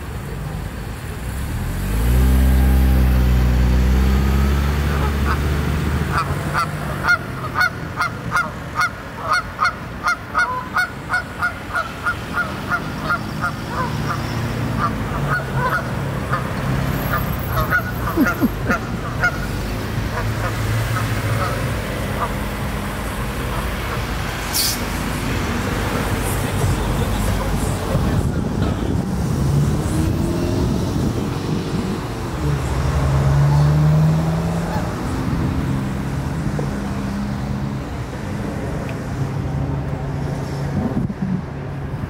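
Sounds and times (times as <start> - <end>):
vehicle engine passing by: 1.2 - 7.7, 12.3 - 42.0
geese honking: 4.8 - 22.6.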